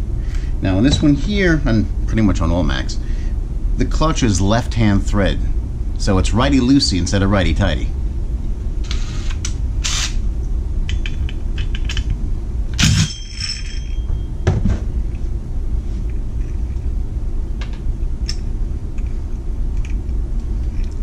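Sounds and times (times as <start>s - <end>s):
motor whine: 8.8s - 10.2s
metal parts clinking: 12.8s - 14.2s.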